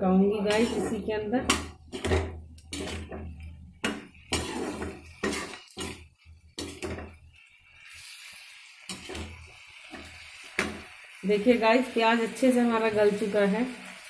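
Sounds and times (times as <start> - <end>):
frying sizzle: 0.2 - 14.0
metal spoon knocking and scraping pan: 0.5 - 7.2, 8.9 - 10.9.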